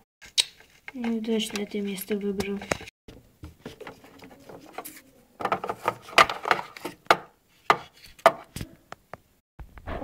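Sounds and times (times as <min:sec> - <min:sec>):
plastic figurines tapping and clicking: 0:00.2 - 0:02.9
rustling handling noise: 0:00.2 - 0:08.7.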